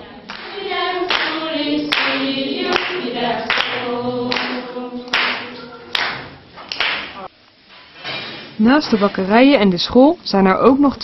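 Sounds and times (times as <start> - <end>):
children singing together: 0.2 - 6.4
children clapping in time: 0.2 - 7.3.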